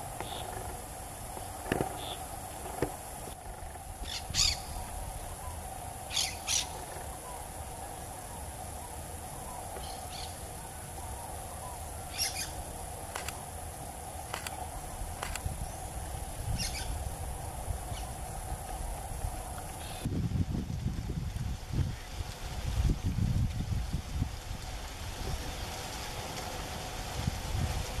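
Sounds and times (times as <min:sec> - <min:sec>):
parakeets calling: 0:03.4 - 0:04.8, 0:06.1 - 0:07.3, 0:12.1 - 0:12.6, 0:16.5 - 0:17.0.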